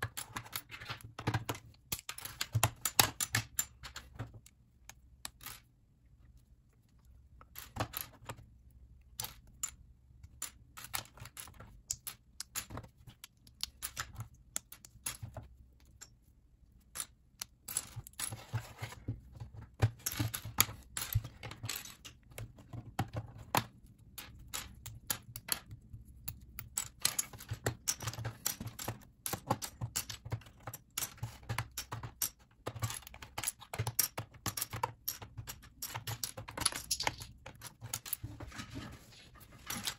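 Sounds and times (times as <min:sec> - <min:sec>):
plastic bricks clicking and clattering: 0:16.9 - 0:38.3.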